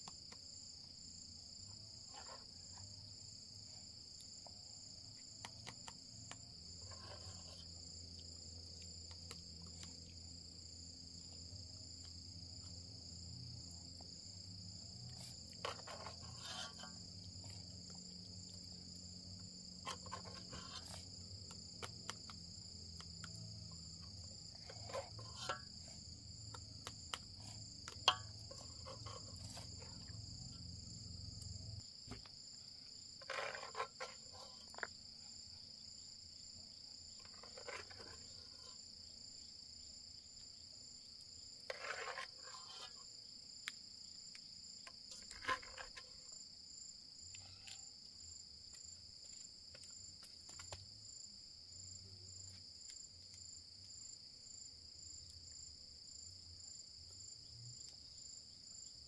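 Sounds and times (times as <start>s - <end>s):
spoon scooping rice in metal pot: 5.0s - 8.2s, 15.0s - 18.6s, 19.7s - 30.7s, 33.2s - 35.0s, 37.2s - 38.9s, 41.7s - 43.1s.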